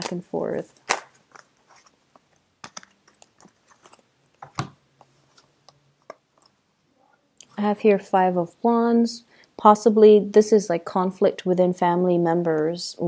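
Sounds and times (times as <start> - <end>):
card snaps: 0.8 - 1.5
cards clicking and tapping: 2.1 - 6.6.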